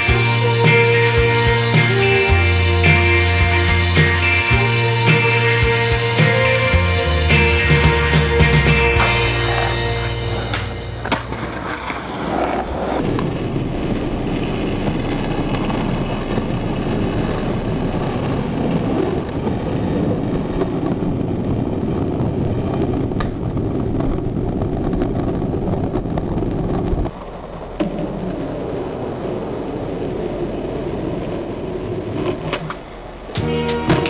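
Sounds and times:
skateboard wheels rolling on asphalt: 0.0s - 34.0s
skateboard clacks: 10.3s - 21.0s, 22.7s - 29.0s, 30.3s - 34.0s.

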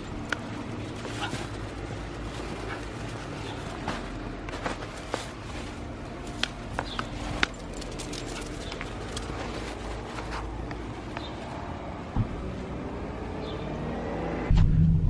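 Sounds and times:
small metal pieces jingling: 0.0s - 1.5s, 6.8s - 9.9s
low rumble: 14.4s - 15.0s.

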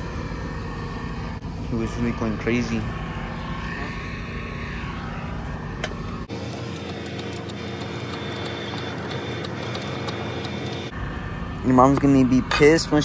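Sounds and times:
vehicle engine idling: 5.7s - 13.0s.

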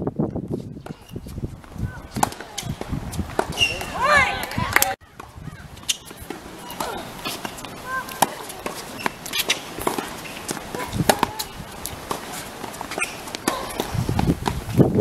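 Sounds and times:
voices: 0.8s - 14.5s
racquet hitting tennis ball: 2.1s - 5.0s, 5.8s - 14.6s
ball bouncing on hard court: 5.9s - 14.6s.

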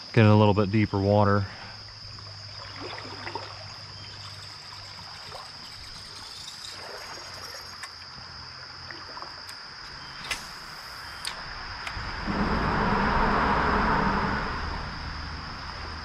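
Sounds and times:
high-pitched insect trill: 0.0s - 16.0s
faint water trickle: 0.5s - 9.6s.

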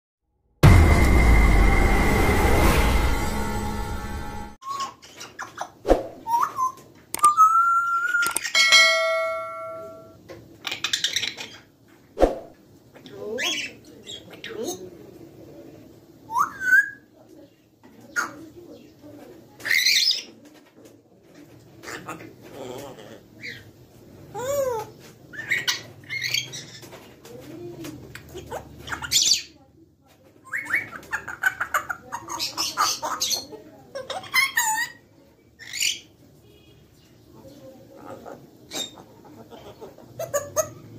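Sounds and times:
bell-like ringing tone: 0.6s - 4.6s, 8.6s - 10.2s
parrots whistling and squawking: 4.6s - 11.7s, 16.3s - 17.0s, 25.3s - 26.9s.

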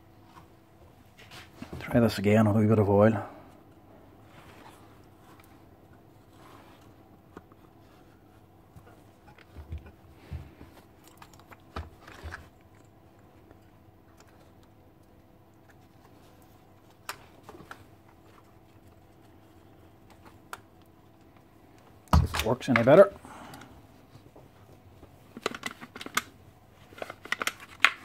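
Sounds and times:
plastic and metal parts clicking: 25.4s - 26.3s.

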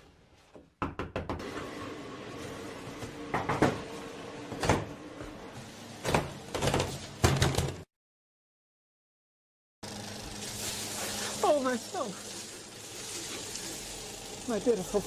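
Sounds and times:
steady machine hum: 9.8s - 15.0s.

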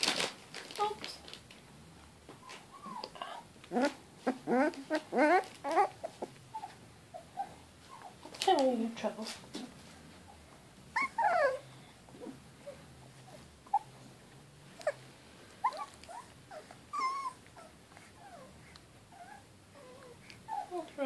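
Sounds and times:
puppy whimpering: 2.4s - 8.4s, 10.9s - 14.1s, 14.7s - 21.0s.

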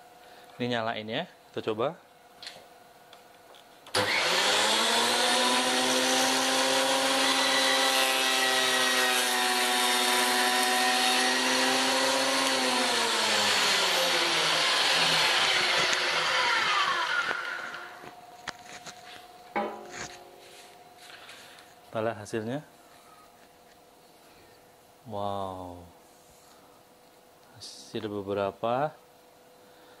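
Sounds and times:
thickness planer whining: 3.9s - 20.8s.

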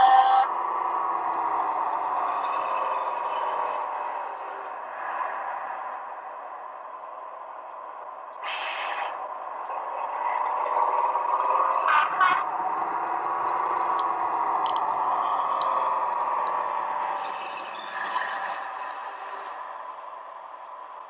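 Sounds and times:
synthesised diesel engine sound: 0.0s - 21.0s
short hiss: 8.4s - 9.2s.

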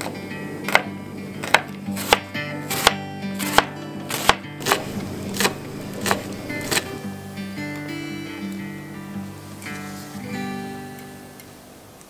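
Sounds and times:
soft acoustic guitar music: 0.0s - 11.8s
knife chopping on wooden board: 0.7s - 7.0s.

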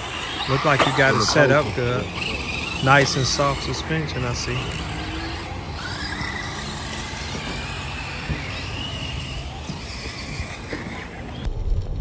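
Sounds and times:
electric motors whining: 0.0s - 11.5s.

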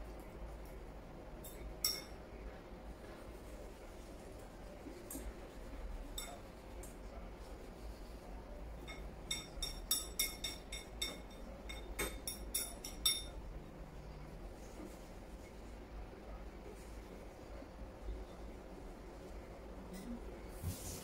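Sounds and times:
chopsticks clinking on ceramic bowl: 1.4s - 2.2s, 6.2s - 6.5s, 8.8s - 13.4s.

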